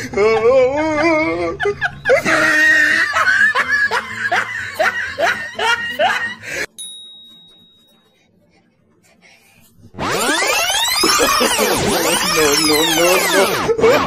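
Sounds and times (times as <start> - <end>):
person laughing hard: 0.0 - 6.7, 10.9 - 14.0
high wavering squeal: 9.9 - 13.6.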